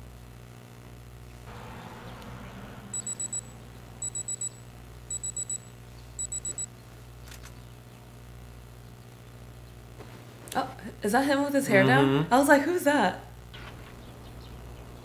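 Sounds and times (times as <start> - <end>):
alarm clock beeping: 2.9 - 6.7.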